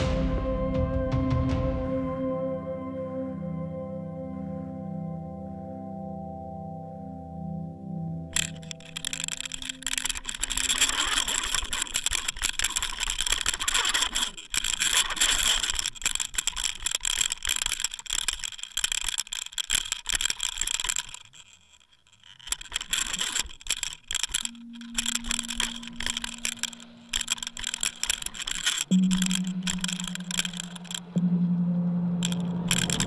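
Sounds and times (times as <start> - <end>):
fishing reel clicking: 8.3 - 31.3, 32.2 - 33.0.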